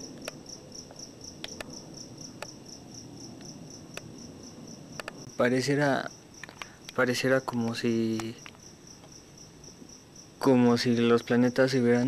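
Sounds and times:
cricket chirping: 0:00.0 - 0:12.0
sharp clicks: 0:01.4 - 0:01.7, 0:05.0 - 0:05.2, 0:06.4 - 0:09.1.

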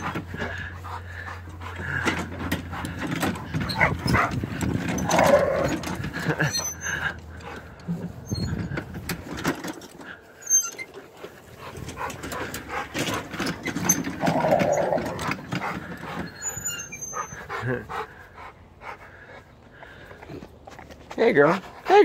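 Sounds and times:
dog making excited noises: 0:00.0 - 0:05.9.

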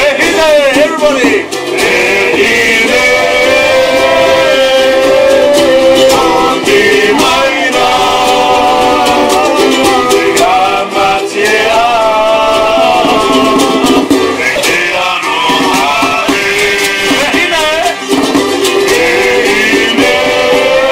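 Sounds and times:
hand drums: 0:00.0 - 0:20.9
men singing together: 0:00.0 - 0:20.9
strummed ukuleles: 0:00.0 - 0:20.9.

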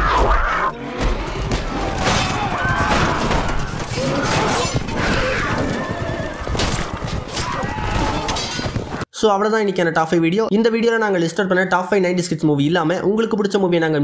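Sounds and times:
horses neighing: 0:00.3 - 0:09.0
charging army din: 0:00.7 - 0:09.1.

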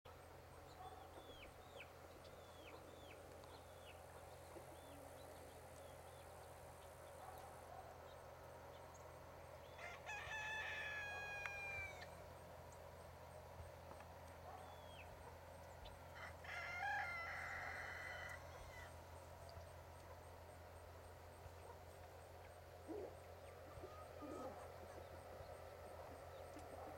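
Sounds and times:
rooster crowing: 0:09.7 - 0:12.2, 0:16.2 - 0:19.0.

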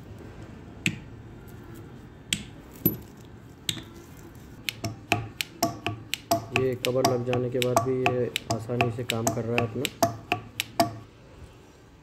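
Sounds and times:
sharp metallic clicks: 0:04.6 - 0:11.0.

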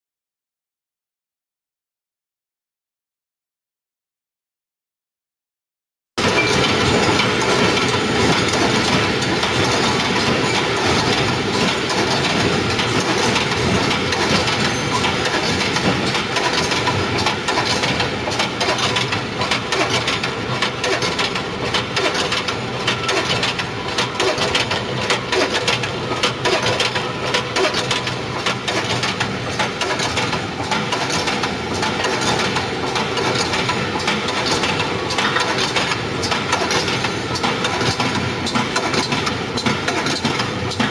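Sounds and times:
weaving machine clattering: 0:06.2 - 0:40.9.

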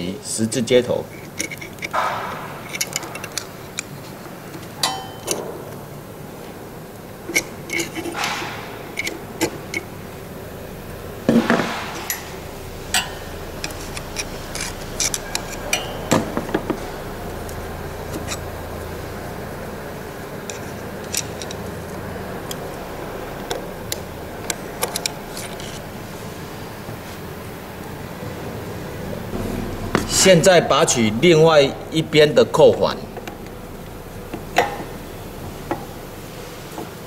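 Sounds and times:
metal tool scraping and clicking: 0:01.1 - 0:05.4, 0:07.3 - 0:09.9, 0:12.9 - 0:16.1.

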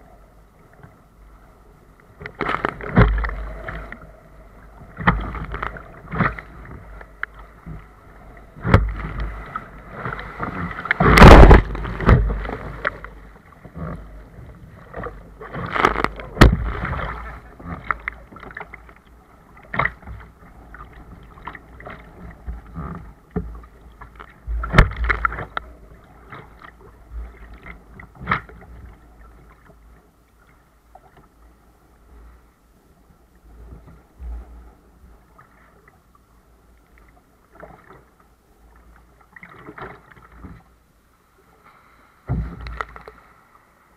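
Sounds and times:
water splashing against kayak hull: 0:01.9 - 0:43.9
paddle blades dipping in water: 0:02.1 - 0:29.8.

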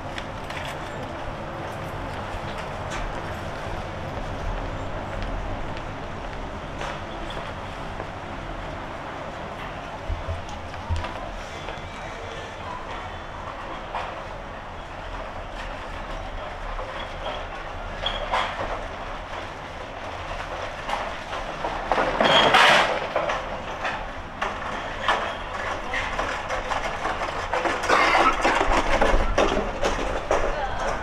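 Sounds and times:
urban background noise: 0:00.0 - 0:31.0
clicks and clatter: 0:20.3 - 0:31.0.

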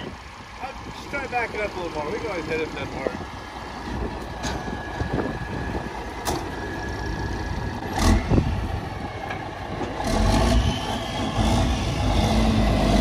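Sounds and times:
diesel truck engine idling: 0:00.0 - 0:12.2.

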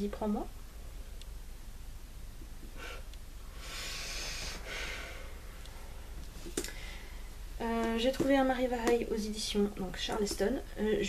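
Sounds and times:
person breathing through nose: 0:02.8 - 0:05.9, 0:06.7 - 0:07.3.

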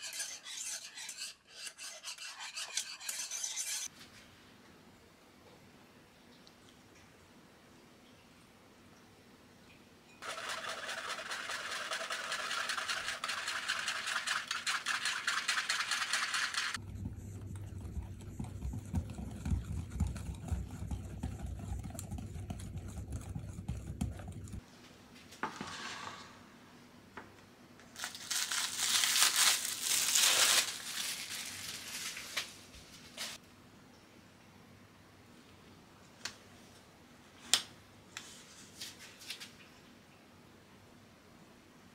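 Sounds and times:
whisk stirring in glass bowl: 0:00.0 - 0:03.9, 0:10.2 - 0:24.6.

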